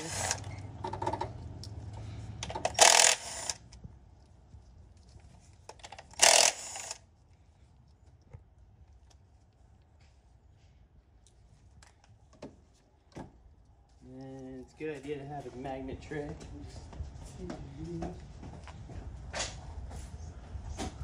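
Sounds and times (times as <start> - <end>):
impact driver running: 0.0 - 0.5, 2.4 - 3.7, 6.1 - 7.0
bolts and tool clicking: 2.4 - 3.8, 5.6 - 7.0.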